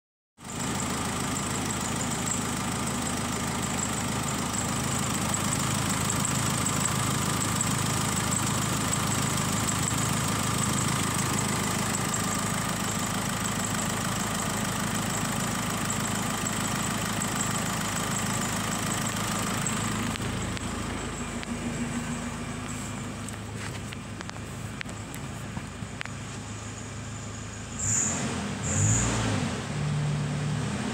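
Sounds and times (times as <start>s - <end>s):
diesel engine idling: 0.4s - 30.9s.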